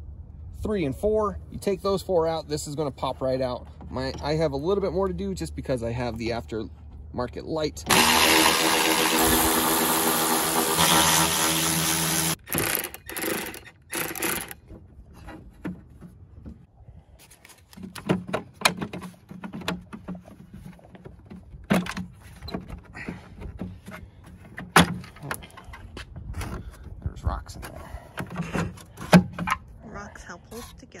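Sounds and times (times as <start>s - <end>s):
cordless electric ratchet running: 7.9s - 14.6s.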